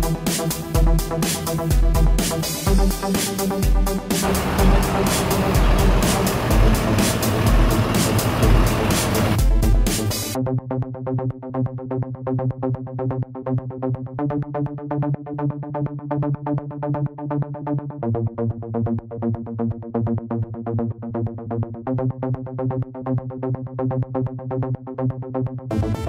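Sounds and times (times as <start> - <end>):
electronic synthesizer music: 4.0 - 10.4.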